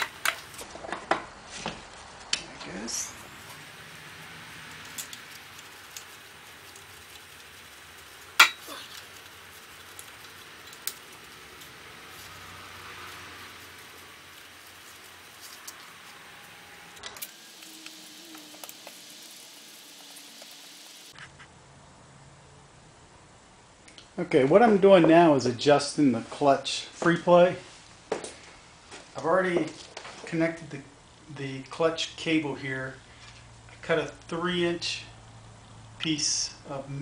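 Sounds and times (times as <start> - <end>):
steady hiss: 0.0 - 0.7, 1.4 - 21.2
hand tools clicking and knocking: 0.0 - 1.2, 8.4 - 8.7.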